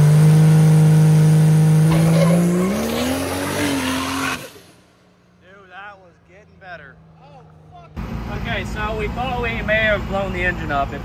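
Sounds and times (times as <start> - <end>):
diesel truck engine running hard: 7.0 - 11.0.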